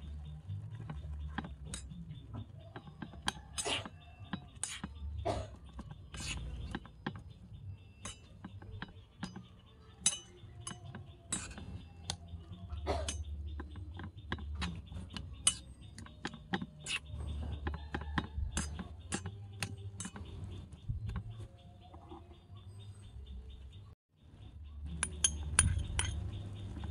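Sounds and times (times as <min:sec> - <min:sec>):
metal spoon clinking on wok: 0:07.9 - 0:12.2.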